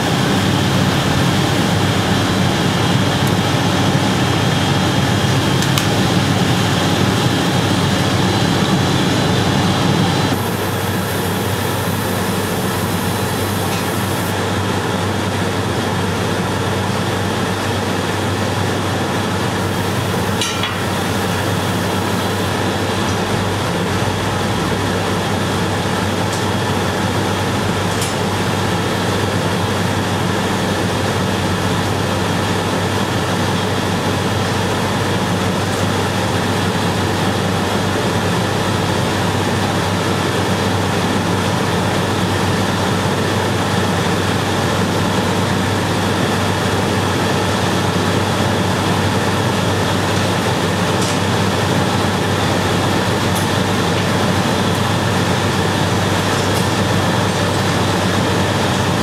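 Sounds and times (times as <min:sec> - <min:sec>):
furnaces and blowers humming: 0:00.0 - 0:59.0.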